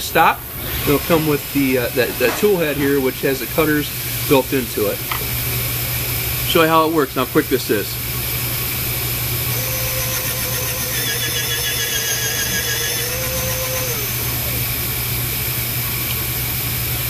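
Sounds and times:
shop machinery hum: 0:00.0 - 0:17.0
high wavering cutting whine: 0:07.2 - 0:17.0
lathe motor whine: 0:08.0 - 0:17.0.

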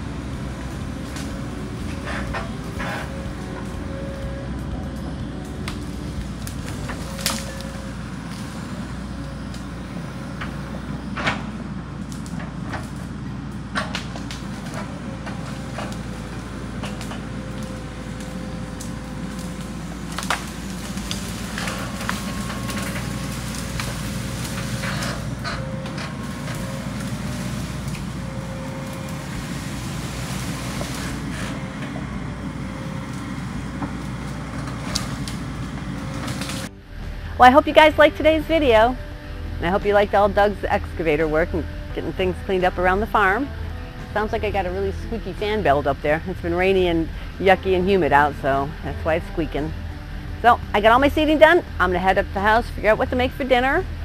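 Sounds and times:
branches cracking: 0:00.0 - 0:36.7
excavator diesel engine running: 0:00.0 - 0:54.0.

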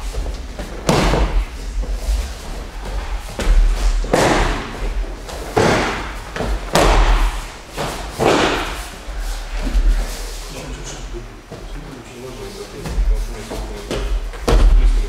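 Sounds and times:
bodies thudding on mat: 0:00.0 - 0:09.0, 0:13.9 - 0:15.0.

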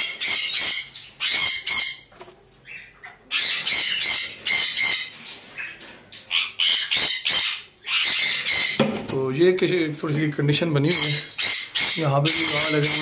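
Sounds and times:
parakeet squawking harshly: 0:00.0 - 0:02.0, 0:03.3 - 0:08.8, 0:10.8 - 0:13.0.

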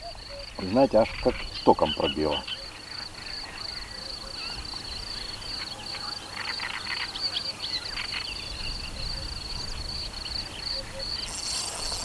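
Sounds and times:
insects trilling: 0:00.0 - 0:12.0
short insect chirps: 0:09.9 - 0:12.0.

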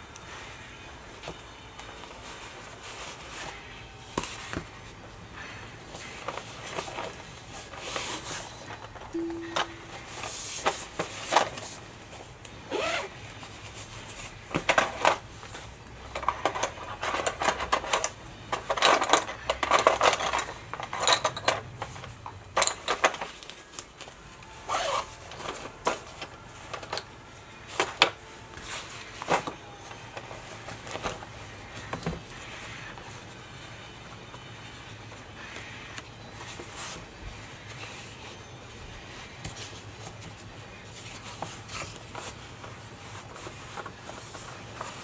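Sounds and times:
faint low hum: 0:00.0 - 0:11.1
clicks and knocks of objects: 0:14.5 - 0:24.2.

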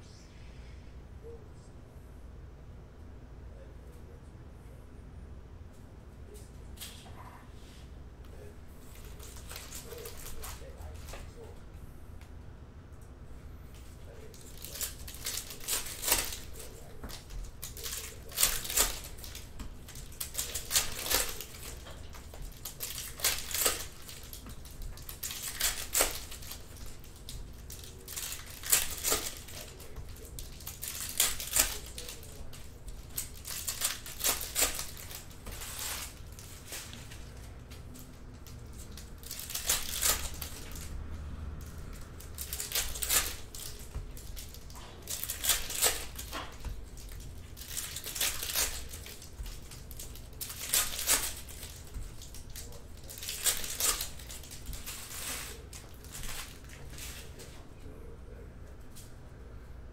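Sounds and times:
plastic wrappers tearing and crinkling: 0:08.8 - 0:11.4, 0:14.1 - 0:40.9, 0:41.6 - 0:57.5.

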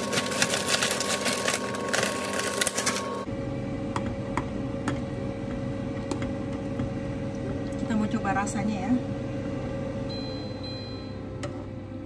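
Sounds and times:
plastic packet crinkling: 0:00.0 - 0:03.2
steady low hum: 0:03.0 - 0:12.0.

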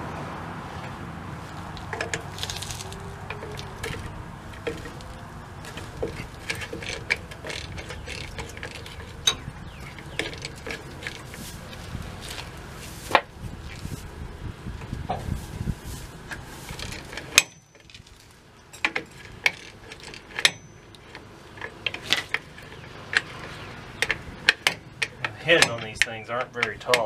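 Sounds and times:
metal tools clicking and clinking: 0:01.8 - 0:11.6
sharp metal clanks: 0:01.9 - 0:11.4, 0:16.9 - 0:27.0.

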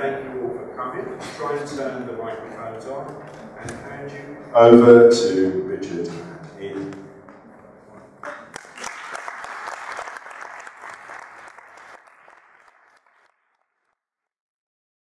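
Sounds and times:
audience applauding: 0:08.2 - 0:13.8.

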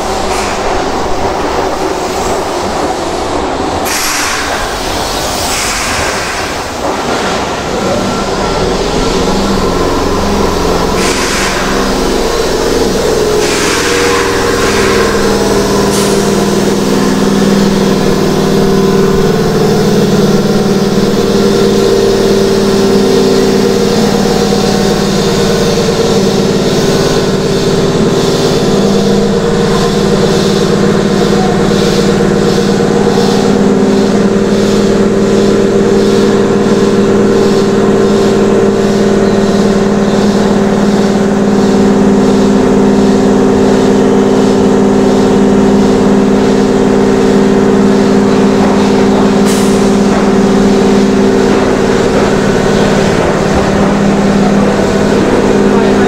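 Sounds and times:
electric train humming: 0:00.0 - 0:56.0
air hisses: 0:03.8 - 0:07.3, 0:09.4 - 0:35.0, 0:47.8 - 0:54.0.

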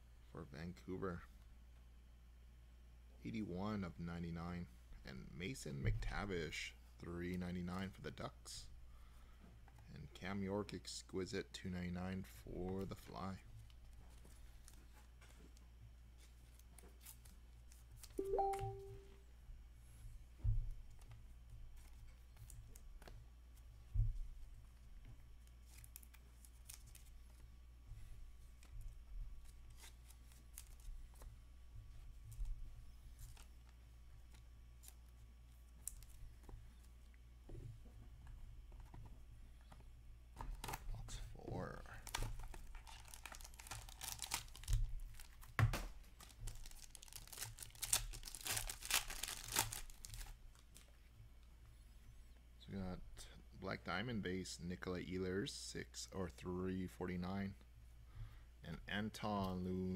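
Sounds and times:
cards rustling and clicking: 0:28.4 - 0:31.4, 0:32.3 - 0:37.0, 0:41.9 - 0:51.0
foil wrapper tearing and crinkling: 0:42.0 - 0:45.5, 0:46.1 - 0:50.9.

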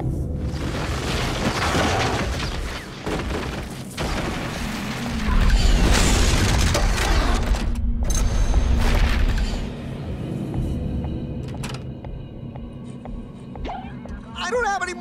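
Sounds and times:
dramatic trailer music: 0:03.9 - 0:15.0.

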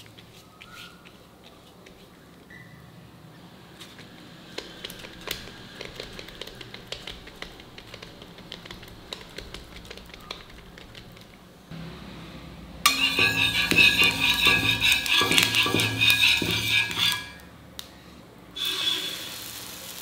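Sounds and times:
fingers patting dough: 0:03.8 - 0:11.6.

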